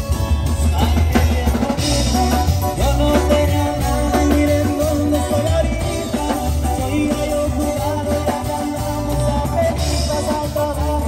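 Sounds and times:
bass line: 0.0 - 11.0
drum kit beat: 0.0 - 11.0
strummed guitars: 0.0 - 11.0.

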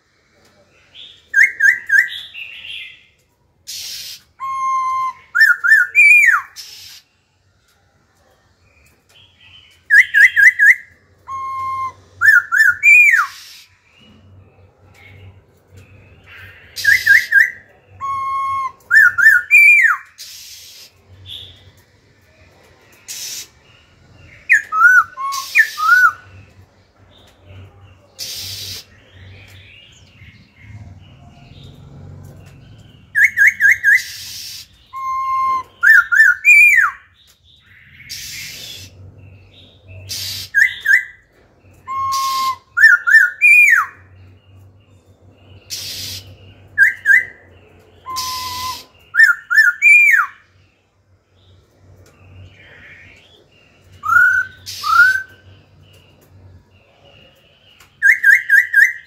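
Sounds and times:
bird whistled song: 0.9 - 7.2, 9.1 - 14.3, 14.9 - 22.4, 23.0 - 30.7, 32.6 - 50.8, 52.3 - 59.0
harsh hissing bird notes: 3.6 - 7.4, 11.3 - 14.3, 16.1 - 36.8, 37.7 - 41.0, 41.6 - 57.8.

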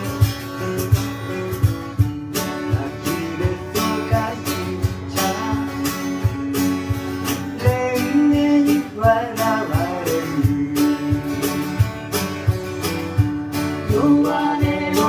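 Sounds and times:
acoustic guitars strummed: 0.0 - 15.0
cajon beat: 0.0 - 15.0.

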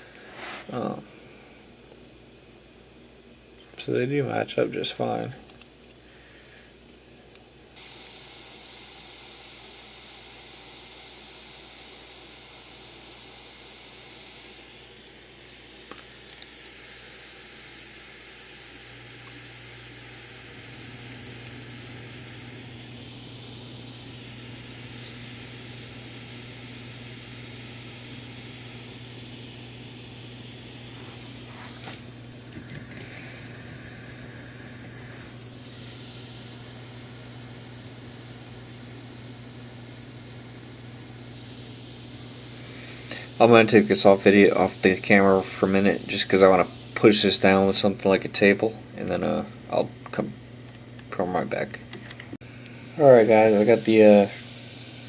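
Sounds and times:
steady hiss: 0.0 - 2.4, 3.4 - 55.0
low steady hum: 14.8 - 55.0.

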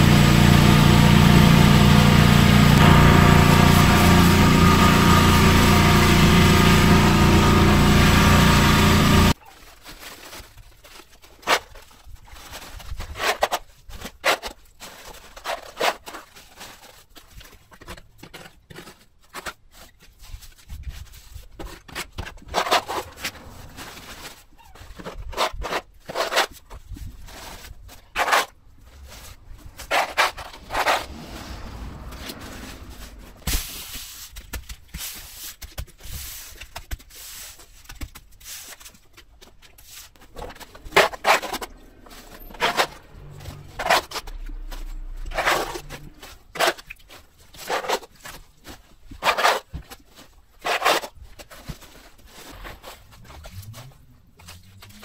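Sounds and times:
hand tool scraping pavement: 0.0 - 9.4, 21.7 - 37.6, 39.8 - 48.4, 50.6 - 54.7.

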